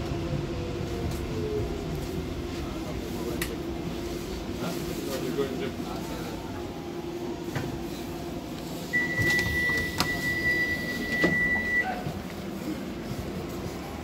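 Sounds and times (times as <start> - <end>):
train door beep: 8.8 - 12.2.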